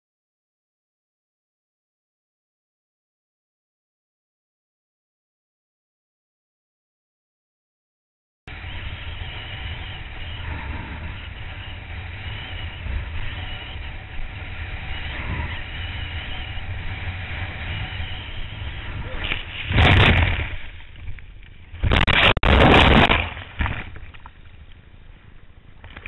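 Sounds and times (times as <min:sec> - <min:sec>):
water rushing under board: 0:19.1 - 0:24.3
rider tumbling into water: 0:19.2 - 0:21.1, 0:21.7 - 0:24.4.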